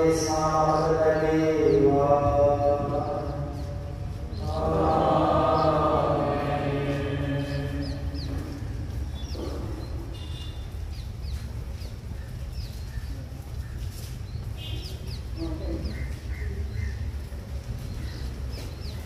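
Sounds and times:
person chanting: 0.0 - 9.0
small birds chirping: 0.0 - 19.0.

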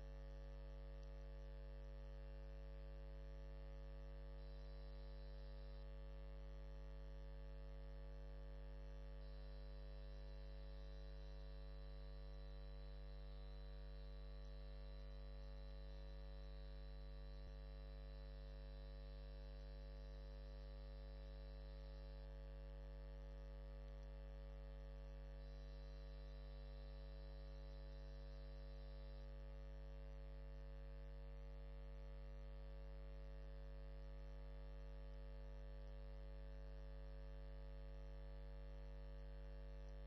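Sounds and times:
faint electrical mains hum: 0.0 - 40.0
small click: 0.9 - 1.3, 23.8 - 24.2.

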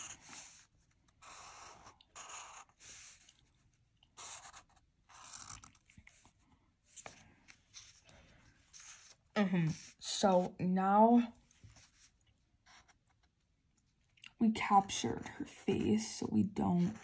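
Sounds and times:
marker scratching on paper: 0.0 - 3.4, 4.1 - 6.2, 8.6 - 10.6, 15.2 - 17.0.

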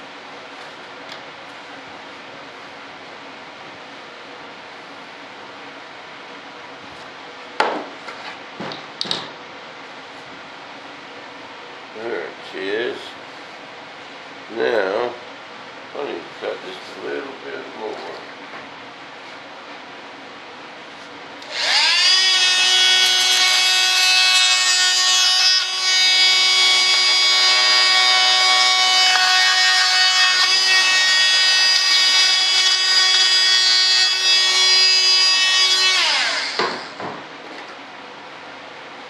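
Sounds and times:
electric drill whining: 21.4 - 37.0.

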